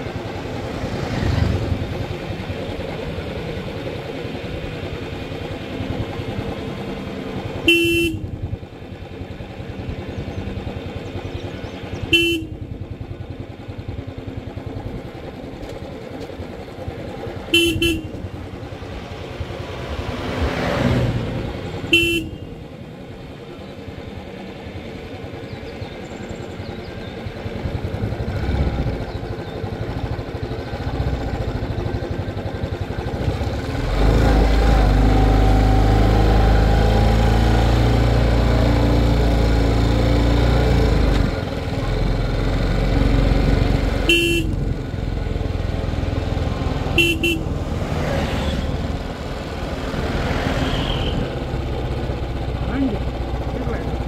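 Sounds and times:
motorcycle engine running: 0:00.0 - 0:54.0
passing vehicle: 0:00.0 - 0:54.0
horn beeps: 0:07.7 - 0:08.2, 0:44.1 - 0:44.6, 0:46.9 - 0:47.5.

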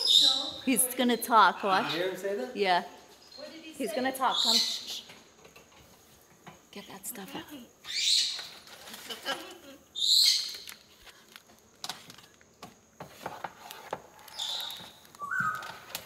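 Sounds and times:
macaw calling: 0:00.0 - 0:02.2, 0:03.3 - 0:05.1, 0:07.8 - 0:08.7, 0:09.9 - 0:10.9, 0:14.2 - 0:16.0
claws and beak clicking on plastic: 0:10.3 - 0:16.0
bird whistle: 0:14.4 - 0:15.9.

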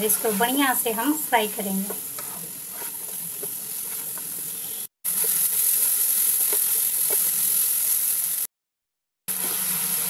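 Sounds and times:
spatula stirring and scraping: 0:00.0 - 0:07.4
mushrooms sizzling in butter: 0:00.0 - 0:08.5, 0:09.3 - 0:10.0.

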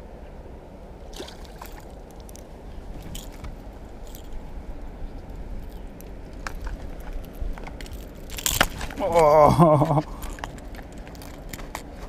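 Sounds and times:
steady low rumble: 0:00.0 - 0:12.0
water sloshing and splashing: 0:01.0 - 0:09.1.

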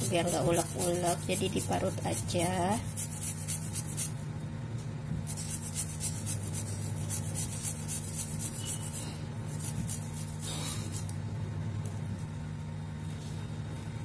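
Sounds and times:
garlic rasping on a metal grater: 0:00.0 - 0:04.1, 0:05.3 - 0:11.1.

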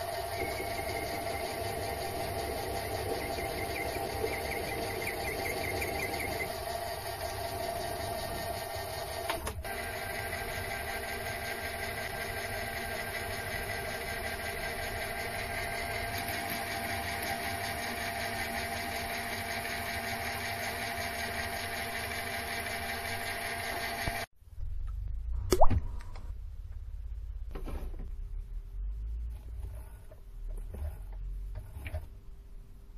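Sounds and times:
lathe drilling whine: 0:00.0 - 0:24.3
low hum: 0:24.4 - 0:30.1.

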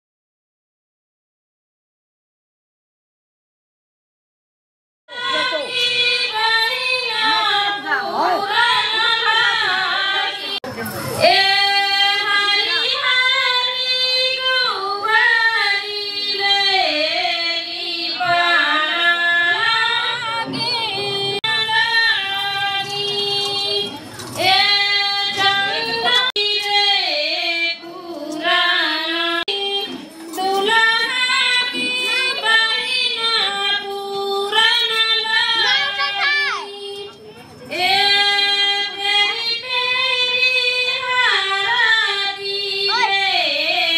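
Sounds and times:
high-pitched voice singing: 0:42.8 - 0:43.5.

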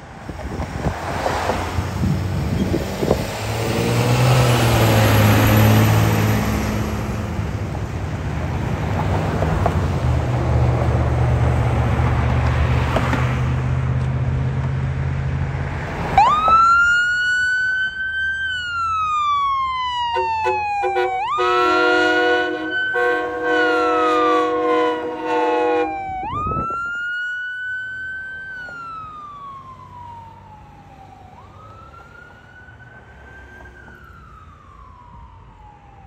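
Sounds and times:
truck engine: 0:00.0 - 0:36.0
electronic siren wailing: 0:16.2 - 0:36.0
fire engine air horn blast: 0:20.1 - 0:26.6.

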